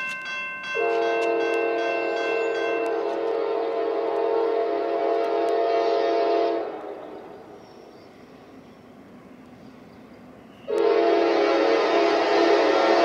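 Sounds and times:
locomotive air horn: 0:00.8 - 0:07.3, 0:10.7 - 0:13.0.

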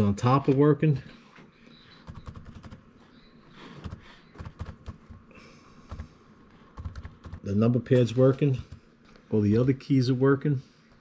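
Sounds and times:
laptop keys clicking: 0:02.0 - 0:02.8, 0:03.8 - 0:05.2, 0:05.9 - 0:06.1, 0:06.7 - 0:07.5.

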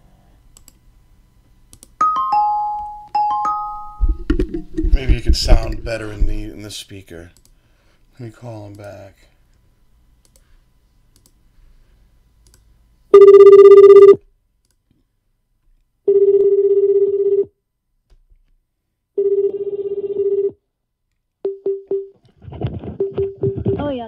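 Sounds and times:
phone ringback tone: 0:13.2 - 0:14.2, 0:16.1 - 0:17.5, 0:19.2 - 0:20.6
short tone blips: 0:13.2 - 0:14.2.

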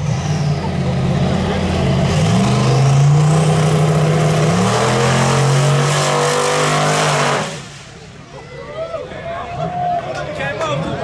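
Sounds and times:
car engine accelerating hard: 0:00.0 - 0:08.2.

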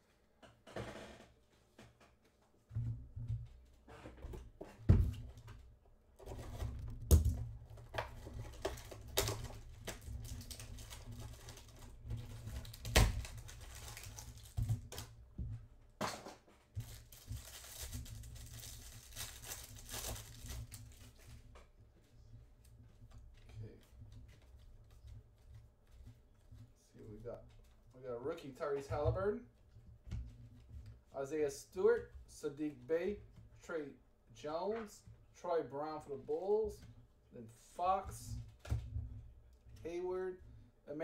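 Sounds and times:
wrapper crinkling and tearing: 0:08.5 - 0:15.1, 0:16.8 - 0:21.2.

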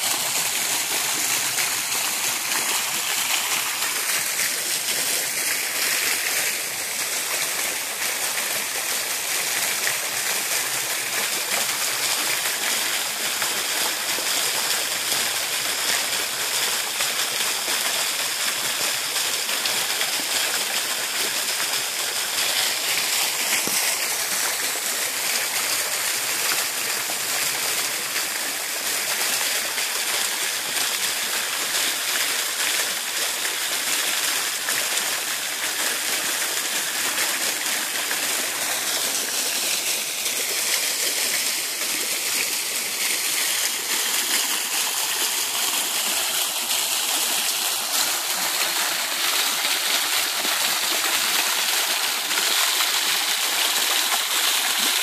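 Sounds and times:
water splashing into a pond: 0:00.0 - 0:55.0.

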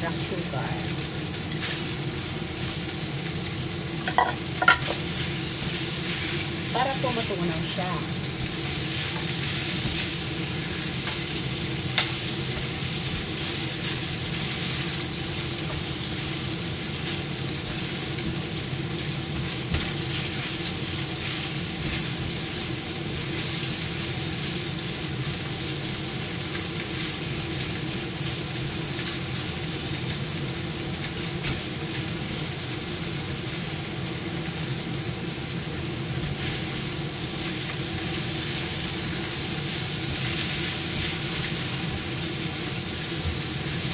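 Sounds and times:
chicken sizzling in frying pan: 0:00.0 - 0:43.9
spatula tapping on pan: 0:04.1 - 0:05.0.

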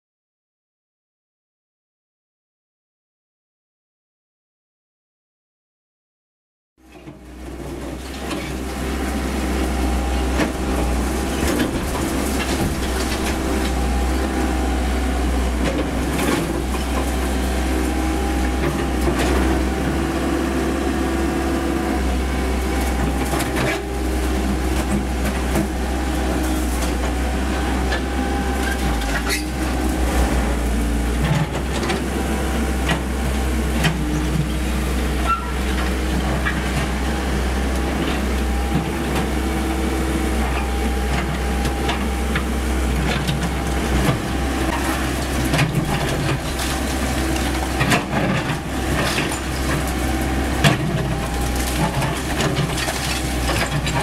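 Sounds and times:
excavator engine and hydraulics: 0:06.8 - 0:54.0
concrete breaking and rubble falling: 0:11.4 - 0:13.7, 0:50.7 - 0:54.0.

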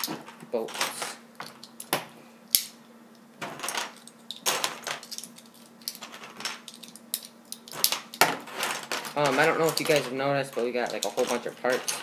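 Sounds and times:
plastic bricks clattering: 0:07.8 - 0:12.0.

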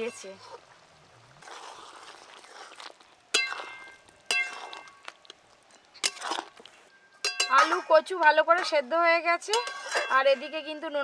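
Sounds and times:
metal spatula stirring thick curry: 0:05.7 - 0:11.0
spatula clinking on metal pan: 0:07.2 - 0:07.9, 0:09.5 - 0:10.8.

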